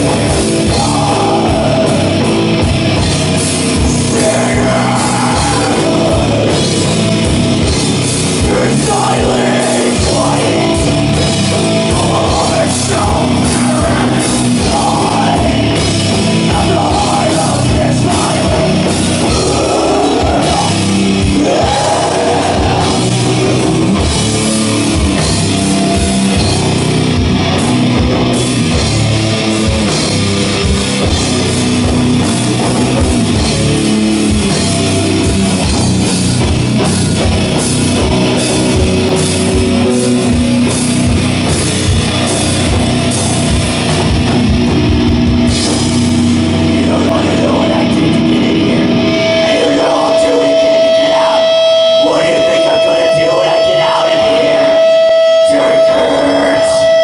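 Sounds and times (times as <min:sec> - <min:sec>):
singer's vocals: 0:00.0 - 0:02.6, 0:03.7 - 0:07.4, 0:08.3 - 0:24.4, 0:46.6 - 0:57.0
distorted guitar: 0:00.0 - 0:57.0
pounding drum kit: 0:00.0 - 0:57.0.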